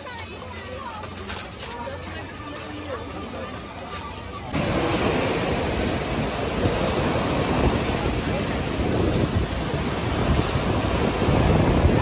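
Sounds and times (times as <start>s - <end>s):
sea surf washing onto beach: 4.5s - 12.0s
wind buffeting microphone: 4.5s - 12.0s.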